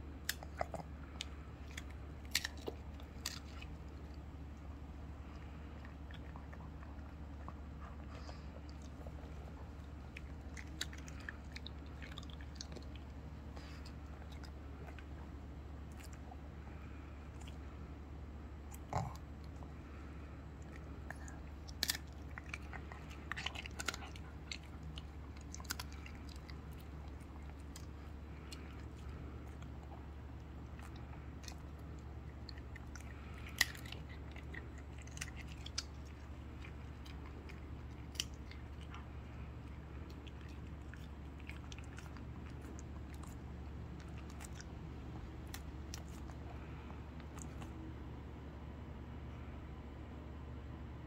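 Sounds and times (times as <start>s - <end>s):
dog crunching hard treat: 0.2s - 4.2s, 20.7s - 47.7s.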